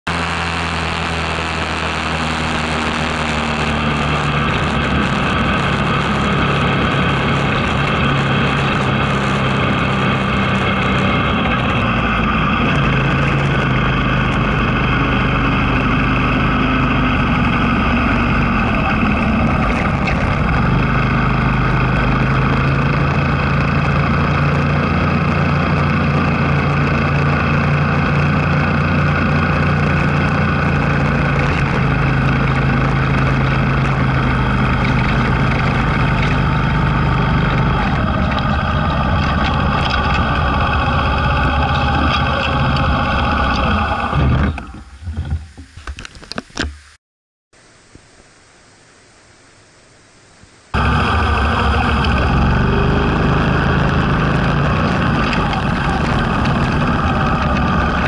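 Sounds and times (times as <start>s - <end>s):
vehicle engine running: 0.0s - 45.5s, 50.7s - 58.0s
wind noise: 1.6s - 46.8s.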